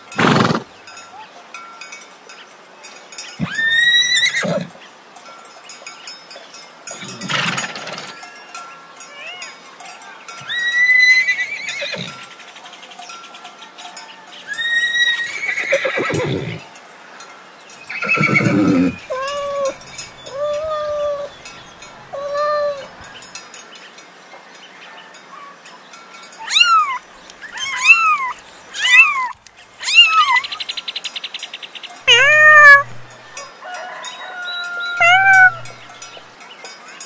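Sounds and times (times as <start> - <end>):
cats meowing: 3.4 - 4.7, 17.9 - 23.1, 26.4 - 30.5, 32.1 - 33.4, 34.9 - 36.2.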